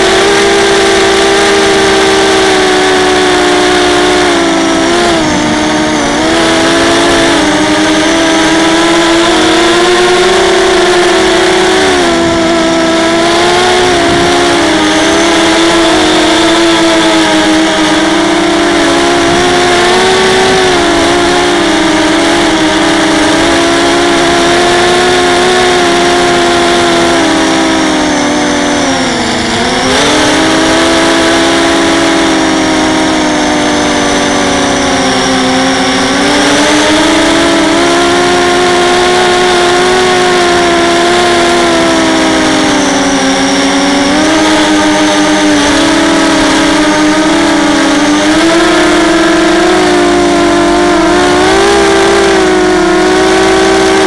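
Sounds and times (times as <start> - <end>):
quadcopter motors buzzing whine: 0.0 - 54.0.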